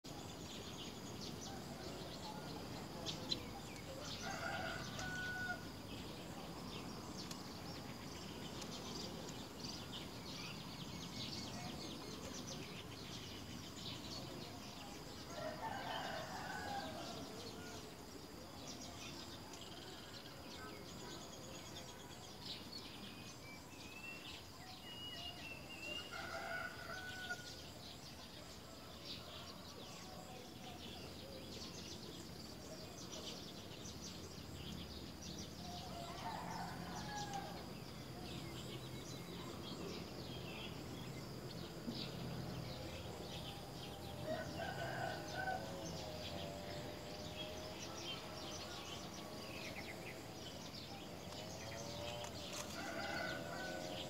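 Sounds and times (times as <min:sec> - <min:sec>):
loud bird calls: 0:00.2 - 0:18.0.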